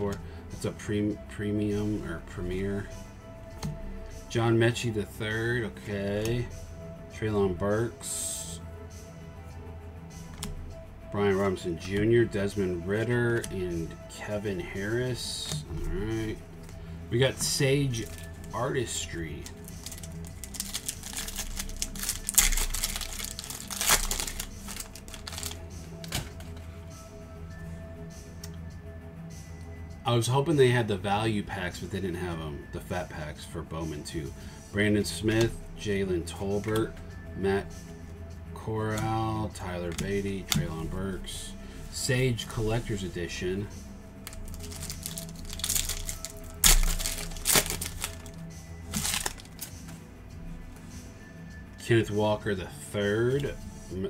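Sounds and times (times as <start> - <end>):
background music: 0.0 - 54.0
foil wrapper crinkling: 19.4 - 26.2, 44.3 - 49.7.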